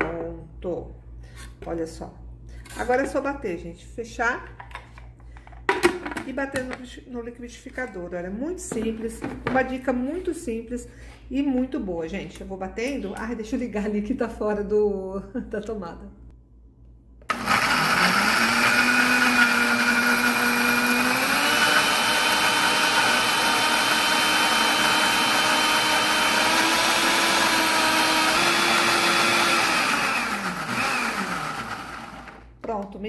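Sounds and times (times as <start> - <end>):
blender motor whining: 17.3 - 32.4.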